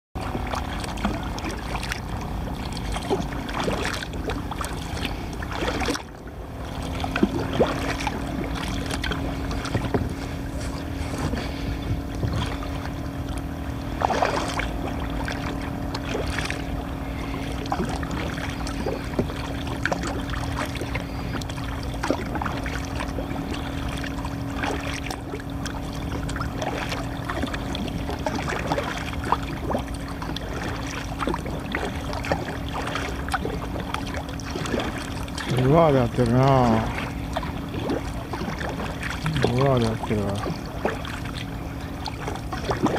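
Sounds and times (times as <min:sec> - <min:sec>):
steady low hum: 0:00.2 - 0:42.9
water lapping and splashing: 0:00.2 - 0:42.9.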